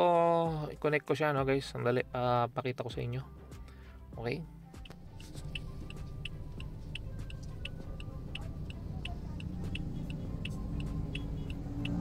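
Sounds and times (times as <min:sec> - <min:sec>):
car cabin hum: 0:04.8 - 0:12.0
light regular ticking: 0:04.8 - 0:12.0.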